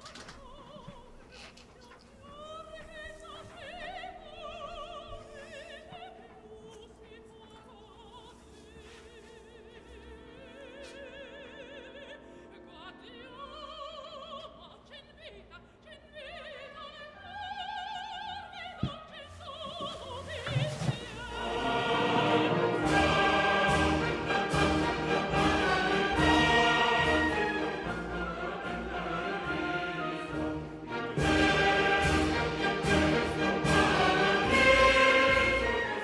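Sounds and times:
operatic singing: 2.2 - 36.0
orchestral accompaniment: 19.6 - 36.0.

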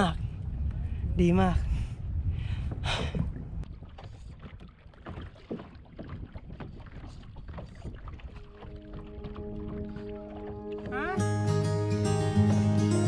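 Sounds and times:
wind rumble on microphone: 0.0 - 11.0
water splashing and dripping: 2.6 - 11.3
music with held notes: 8.9 - 13.0.

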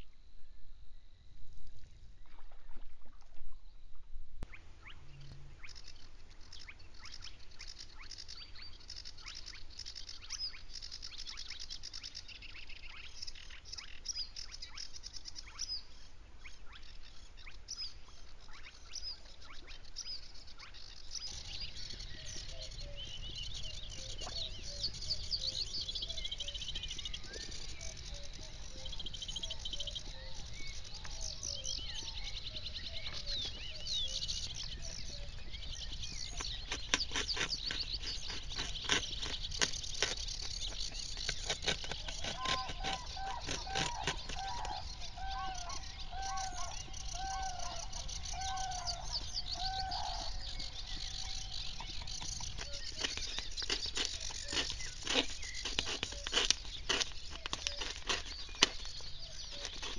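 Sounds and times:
birds chirping and trilling: 4.4 - 59.9
bird hooting notes: 42.6 - 51.6.

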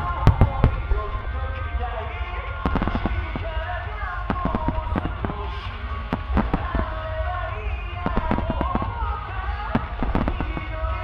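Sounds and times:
music playing: 0.0 - 11.0
firework shells bursting: 2.5 - 11.0.

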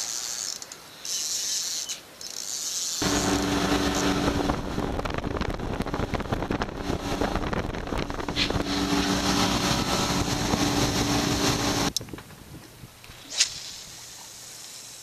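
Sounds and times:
outboard motors humming: 3.0 - 11.9
water rushing: 3.0 - 11.9
rushing wind: 3.0 - 14.0.

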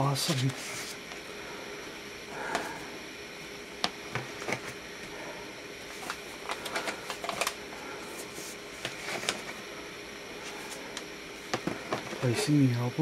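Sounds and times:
cardboard and paper rustling: 0.2 - 1.0, 5.9 - 9.6.

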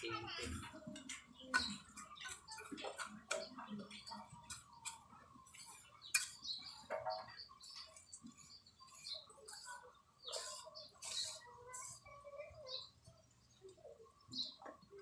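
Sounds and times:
trowel scraping wet mortar: 10.3 - 11.4.

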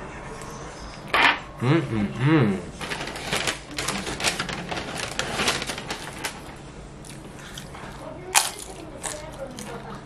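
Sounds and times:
paper bag crinkling and rustling: 2.8 - 6.7
crunch of chip being bitten: 8.4 - 9.8.

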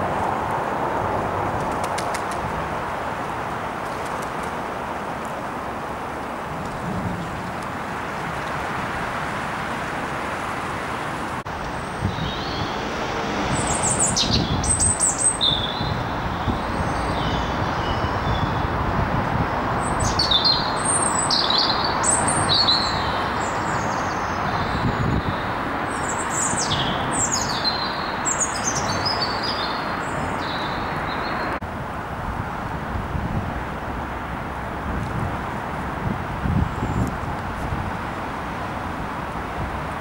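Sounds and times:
steady rushing noise: 0.0 - 20.1
small birds chirping: 13.4 - 18.7, 19.8 - 31.6.

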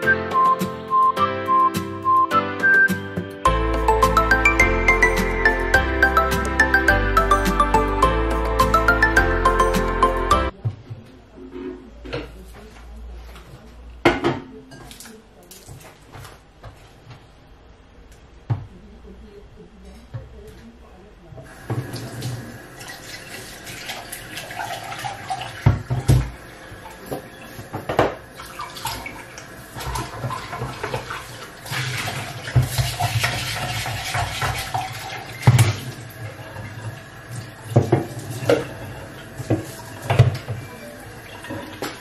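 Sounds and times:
tap water running into sink: 21.5 - 42.0
pots knocking against sink: 25.6 - 26.4, 27.0 - 28.3, 32.1 - 36.0, 37.7 - 40.8
brush scrubbing pot: 28.4 - 42.0.

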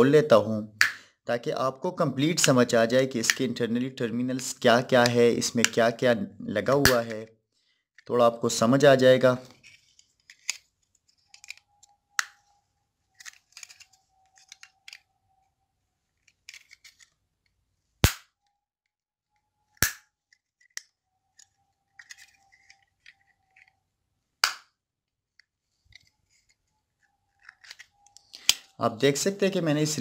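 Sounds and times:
sharp snaps of casing: 18.0 - 18.4, 19.8 - 20.1, 24.4 - 24.7
screwdriver scraping plastic casing: 21.4 - 23.8, 25.9 - 28.4.

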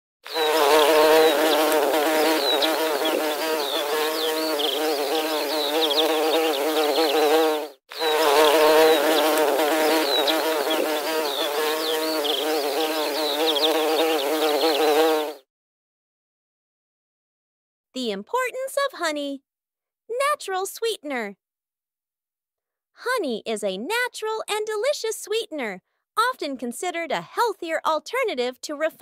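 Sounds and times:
bees buzzing: 0.2 - 15.4.

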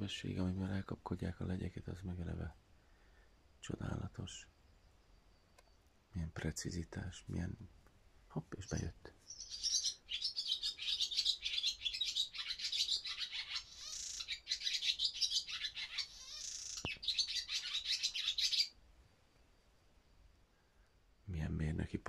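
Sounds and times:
swallow twittering song: 8.6 - 18.8.

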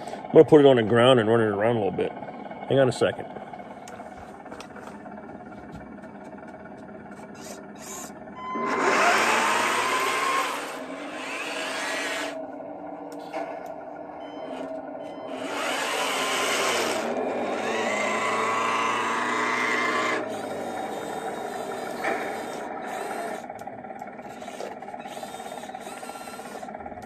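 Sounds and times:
electric motors whining: 0.0 - 27.0
toy tank tracks running: 7.3 - 12.4, 15.3 - 27.0.

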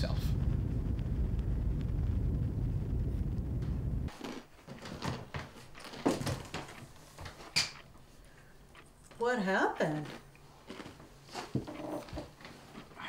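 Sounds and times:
car road rumble: 0.3 - 4.1.

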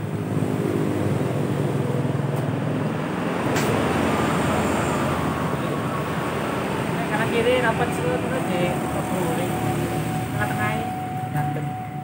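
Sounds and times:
sharp click: 3.5 - 3.8.

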